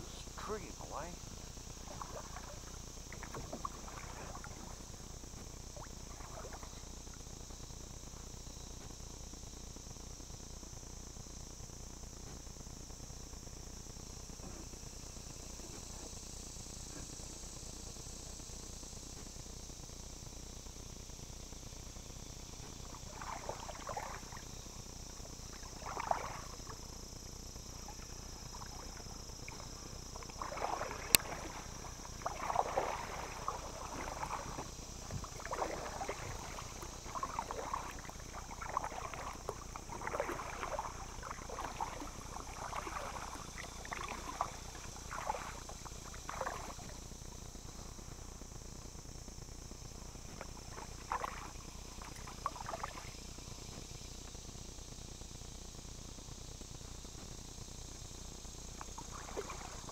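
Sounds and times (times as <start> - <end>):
paddle strokes splashing: 0.0 - 7.0, 22.7 - 26.9, 27.7 - 47.0, 50.2 - 53.2, 58.8 - 59.9
steady high hiss: 0.0 - 59.9.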